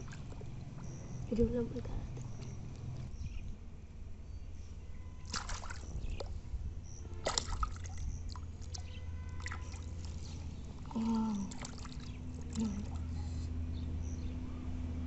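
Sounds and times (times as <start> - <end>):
hands splashing in muddy water: 5.2 - 6.3, 7.2 - 13.2.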